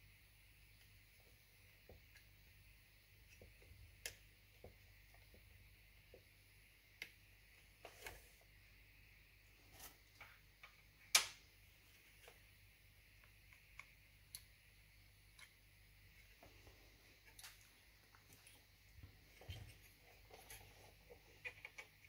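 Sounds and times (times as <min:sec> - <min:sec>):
faint clicks and taps of tools: 0:15.3 - 0:15.6.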